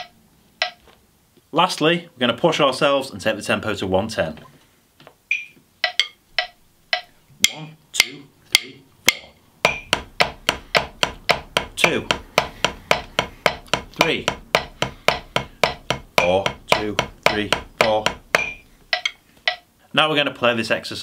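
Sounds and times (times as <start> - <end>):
metronome clicking: 0.0 - 0.9, 5.3 - 19.7
drumsticks on practice pad: 0.0 - 1.0, 5.0 - 19.7.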